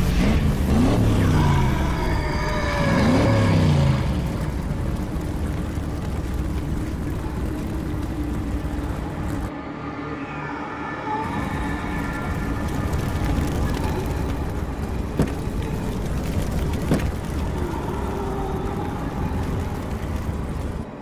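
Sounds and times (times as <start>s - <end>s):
car engine revving: 0.0s - 9.5s.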